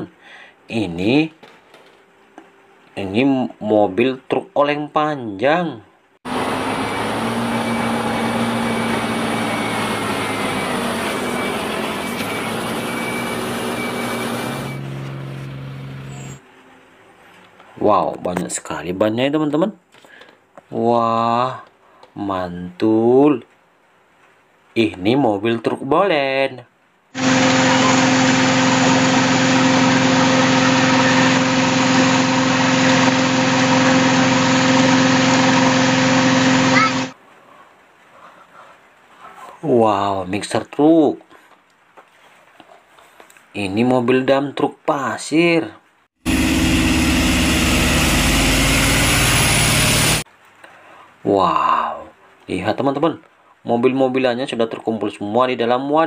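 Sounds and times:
truck diesel engine running: 0:06.3 - 0:16.4, 0:27.2 - 0:37.2, 0:46.2 - 0:50.2
thin high whine: 0:27.2 - 0:37.2.

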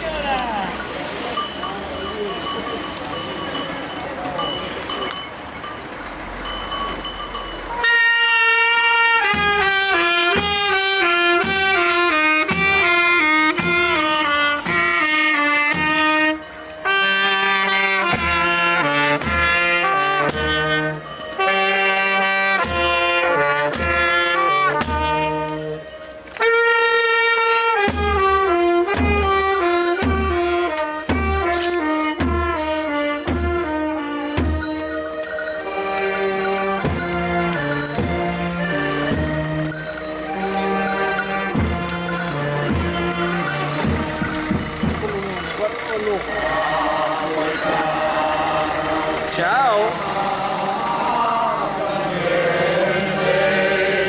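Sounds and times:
saxophone: 0:07.7 - 0:44.9
trumpet: 0:07.7 - 0:45.6
bass drum beating: 0:40.7 - 0:45.4.

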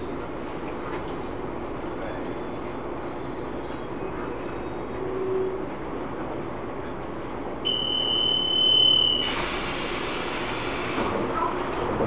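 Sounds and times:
train background hum: 0:00.0 - 0:12.0
door-closing warning beep: 0:07.6 - 0:09.6.

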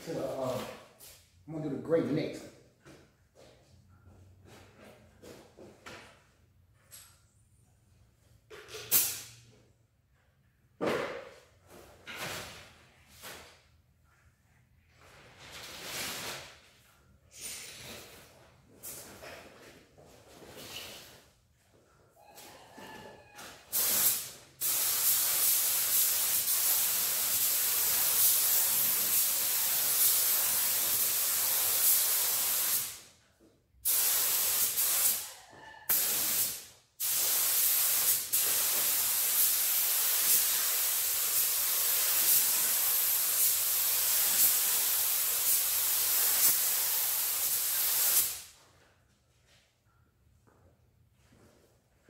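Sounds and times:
paint spray gun hissing: 0:35.9 - 0:48.4.

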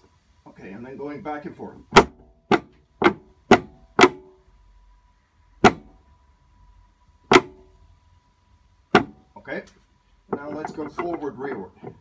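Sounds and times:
sharp metallic knocks: 0:01.9 - 0:04.4, 0:05.6 - 0:06.0, 0:07.3 - 0:07.7, 0:08.9 - 0:09.2, 0:10.3 - 0:12.0.

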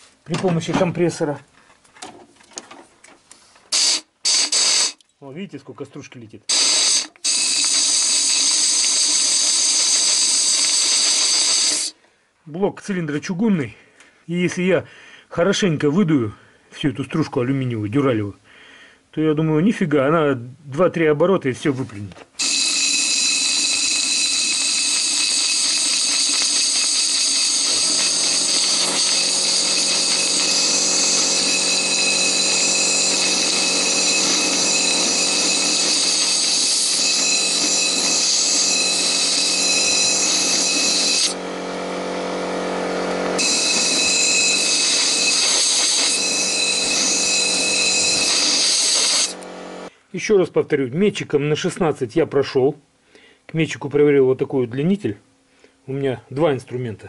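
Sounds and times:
compressed air hissing and whistling: 0:03.7 - 0:05.0, 0:06.5 - 0:12.0, 0:22.4 - 0:41.4, 0:43.4 - 0:49.4.

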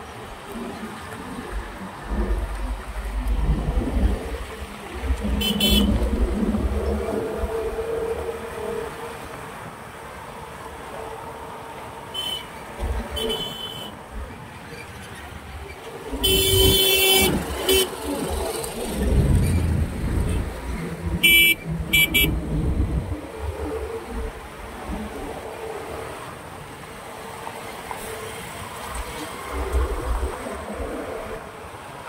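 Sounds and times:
traffic rumble of engines and tyres: 0:00.0 - 0:32.0
vehicle horns honking: 0:05.4 - 0:06.0, 0:12.1 - 0:12.5, 0:13.1 - 0:13.9, 0:16.2 - 0:17.9, 0:21.2 - 0:22.4.

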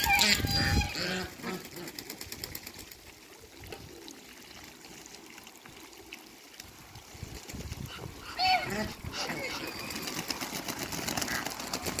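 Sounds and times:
water splashing: 0:00.0 - 0:12.0
duck bills clicking: 0:10.2 - 0:12.0.

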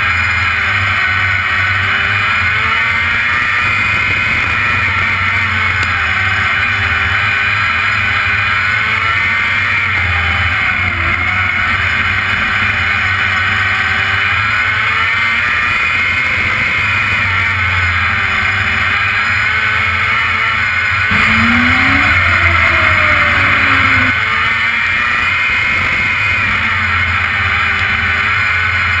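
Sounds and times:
race car engine revving: 0:00.0 - 0:29.0
rush of noise: 0:21.1 - 0:24.3.

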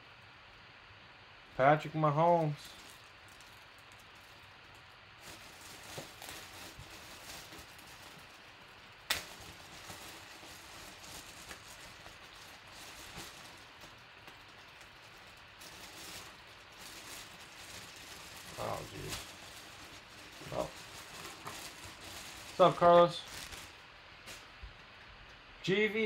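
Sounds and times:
plastic bag crinkling: 0:02.4 - 0:24.9
plastic bag snap: 0:09.0 - 0:15.0, 0:20.4 - 0:24.6.

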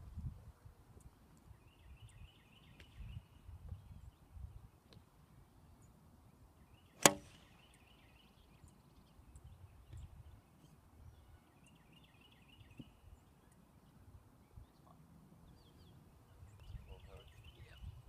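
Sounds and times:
golf club striking ball: 0:07.0 - 0:07.5.

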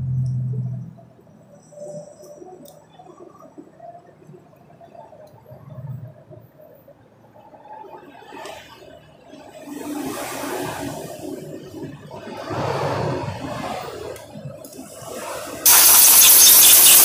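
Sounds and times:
aerosol spray hissing: 0:15.7 - 0:17.0.

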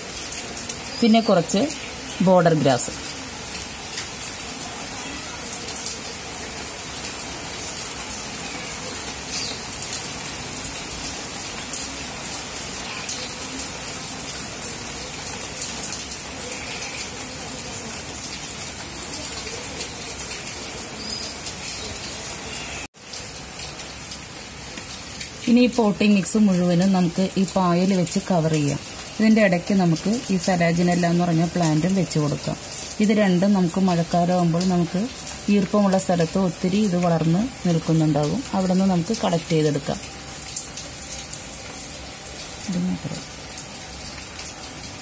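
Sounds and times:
steady rain falling: 0:00.0 - 0:45.0.

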